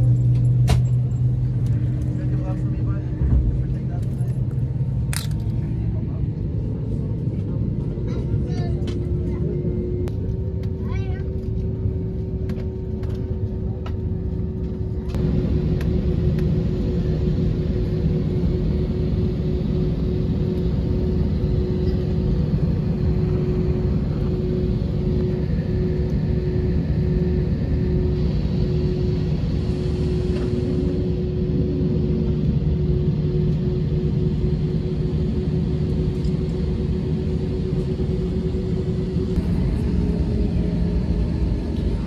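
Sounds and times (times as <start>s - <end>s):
constant cabin hum: 0.0s - 42.0s
jet engine rumble in cabin: 0.0s - 42.0s.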